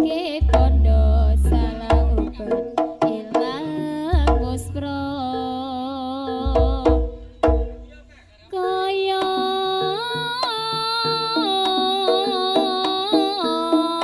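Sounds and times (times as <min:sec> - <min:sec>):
hand drum strokes: 0:00.0 - 0:08.0
held melody line: 0:00.0 - 0:14.0
steady percussion beat: 0:00.0 - 0:14.0.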